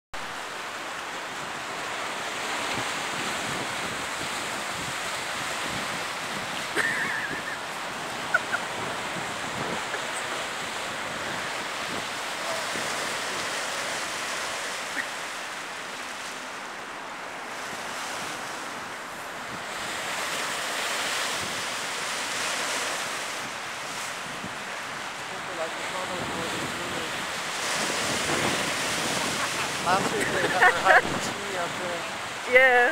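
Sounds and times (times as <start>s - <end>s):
surf washing up a slipway: 0.2s - 32.9s
wind buffeting microphone: 2.6s - 13.2s, 26.0s - 31.9s.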